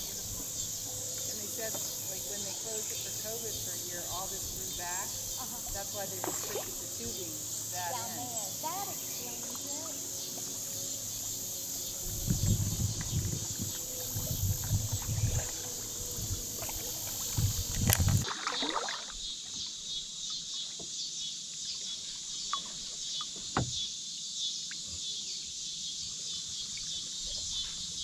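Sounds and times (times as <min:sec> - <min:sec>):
high insect buzz: 0:00.0 - 0:18.3
water splashing and dripping: 0:05.4 - 0:07.2, 0:12.2 - 0:19.6
low wind rumble on microphone: 0:11.7 - 0:18.2.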